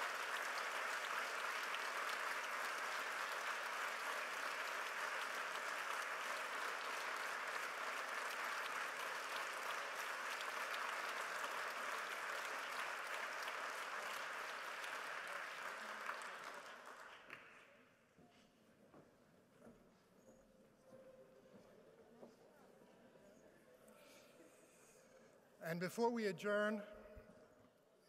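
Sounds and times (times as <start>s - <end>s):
audience applauding: 0.0s - 17.7s.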